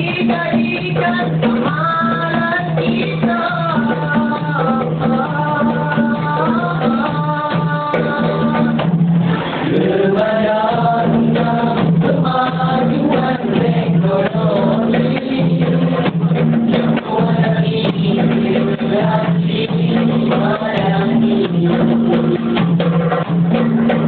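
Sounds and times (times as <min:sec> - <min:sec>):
male group singing: 0:00.0 - 0:22.9
hand drums beating: 0:00.0 - 0:24.0.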